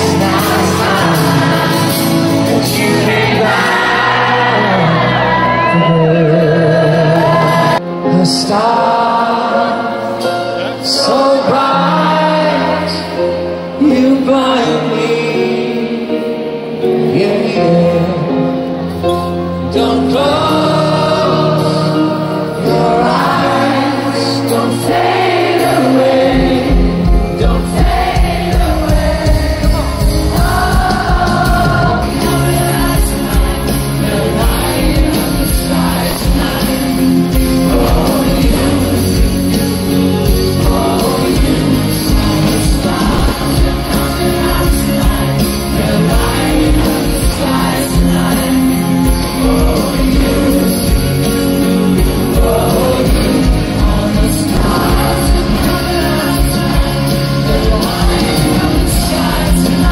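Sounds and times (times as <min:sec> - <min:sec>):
live pop band playing: 0:00.0 - 0:59.9
person singing: 0:00.0 - 0:59.9
steady drum beat: 0:25.2 - 0:59.9.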